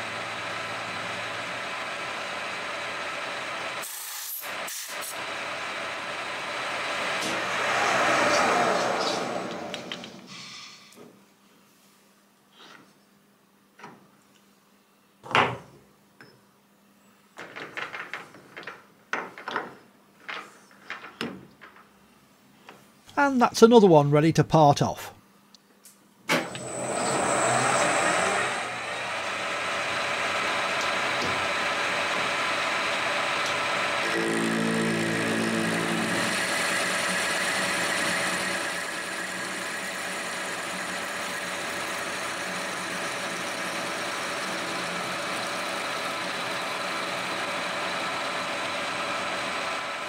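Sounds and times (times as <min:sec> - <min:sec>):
lathe running: 0:00.0 - 0:03.9, 0:26.4 - 0:50.0
low hum: 0:34.0 - 0:36.8.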